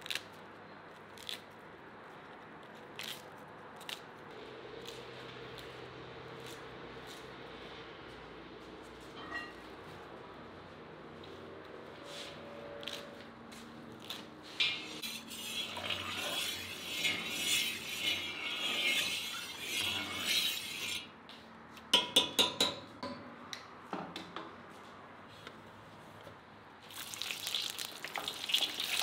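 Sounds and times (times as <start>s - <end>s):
brush swishing liquid in a pot: 15.1s - 17.2s, 27.0s - 29.0s.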